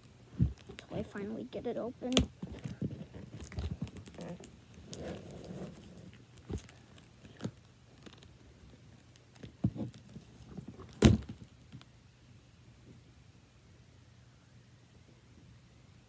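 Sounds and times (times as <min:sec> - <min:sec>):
cardboard scraping: 0:02.4 - 0:06.7
cardboard box thumps: 0:10.9 - 0:11.4.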